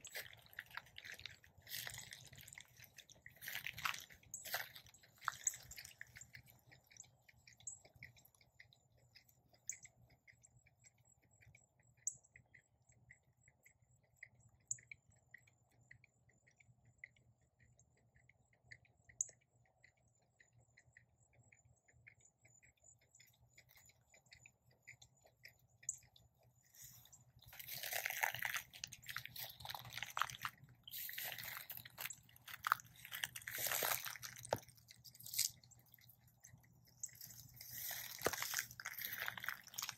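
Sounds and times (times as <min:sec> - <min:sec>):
footsteps crunching on pine straw: 0:00.0 - 0:02.6, 0:03.4 - 0:05.9, 0:27.5 - 0:34.6, 0:37.2 - 0:39.9.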